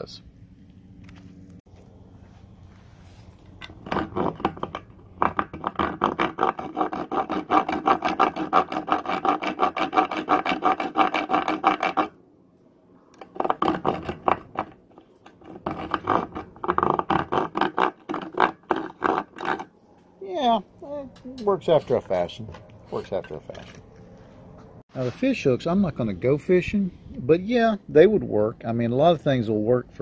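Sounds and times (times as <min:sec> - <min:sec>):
metal saw rasping into wood: 0:03.8 - 0:12.2, 0:13.2 - 0:19.7.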